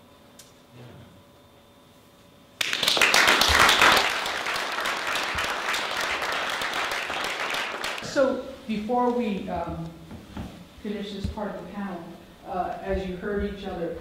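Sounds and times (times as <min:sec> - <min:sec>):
audience applauding: 0:02.6 - 0:08.0.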